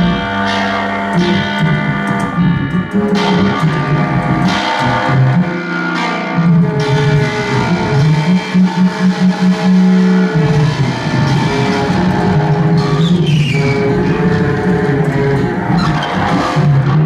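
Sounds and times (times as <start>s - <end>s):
guitar through effects: 0.0s - 17.0s
keyboard: 0.0s - 17.0s.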